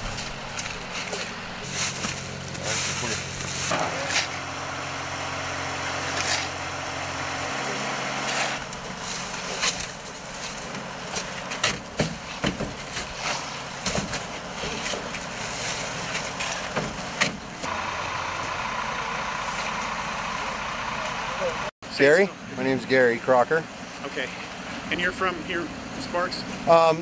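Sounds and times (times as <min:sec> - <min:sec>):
truck engine idling: 0:00.0 - 0:26.7.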